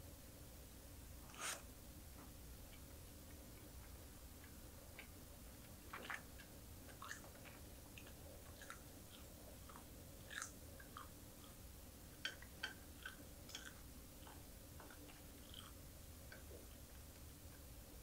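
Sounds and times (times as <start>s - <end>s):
chewing and mouth sounds: 3.5s - 11.6s, 12.2s - 17.0s.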